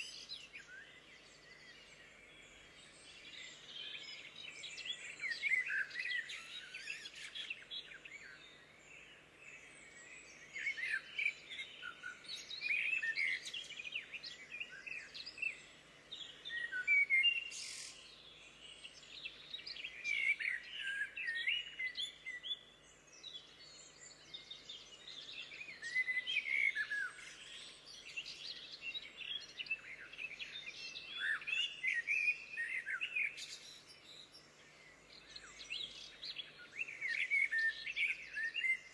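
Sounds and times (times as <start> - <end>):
songbirds singing and chirping: 0.0 - 38.9.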